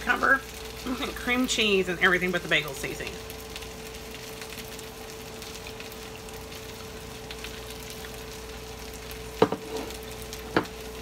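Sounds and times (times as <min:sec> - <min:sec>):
vegetables sizzling in a pan: 0:00.0 - 0:11.0.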